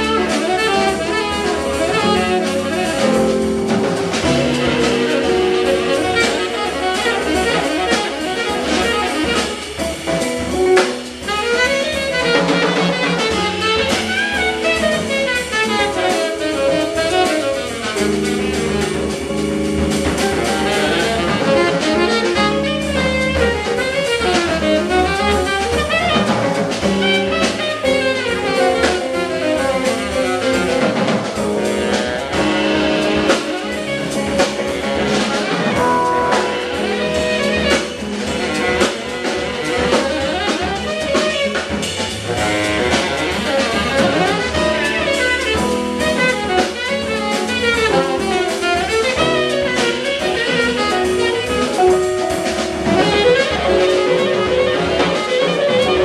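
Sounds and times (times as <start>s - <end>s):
drum kit: 0.0s - 56.0s
guitar: 0.0s - 56.0s
tenor saxophone: 0.0s - 56.0s.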